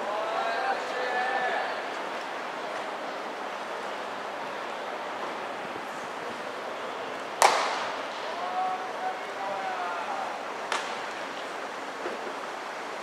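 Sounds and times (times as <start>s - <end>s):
distant players shouting: 0.0s - 1.9s, 7.2s - 11.0s
baseball smacking into glove: 7.4s - 8.0s, 10.7s - 11.0s.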